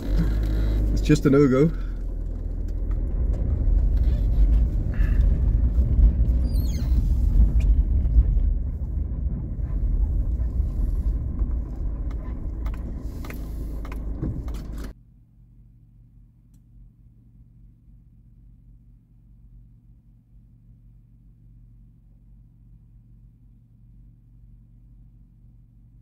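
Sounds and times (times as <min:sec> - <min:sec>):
van engine running: 0:00.0 - 0:15.0.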